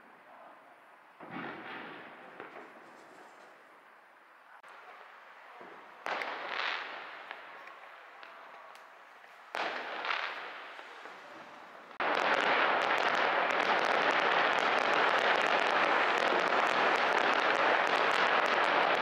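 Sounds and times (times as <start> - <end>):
firework bangs: 1.2 - 3.6, 4.8 - 19.0
firecrackers crackling: 4.6 - 19.0.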